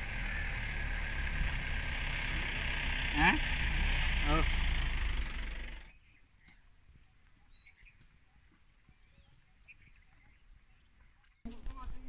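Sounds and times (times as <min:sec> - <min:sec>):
vehicle engine running: 0:00.0 - 0:06.0
faint bird chirps: 0:05.8 - 0:11.4.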